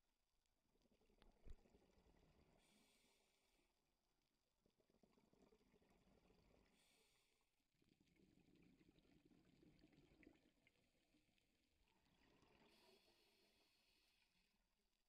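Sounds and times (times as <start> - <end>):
faint muffled underwater hiss: 2.4 - 3.7, 6.3 - 7.5, 12.5 - 14.6.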